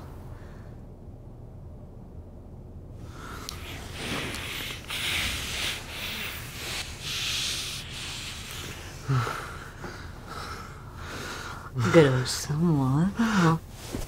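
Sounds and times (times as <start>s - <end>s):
kissing and breathing: 3.3s - 10.1s
clothing rubbing: 13.7s - 14.0s.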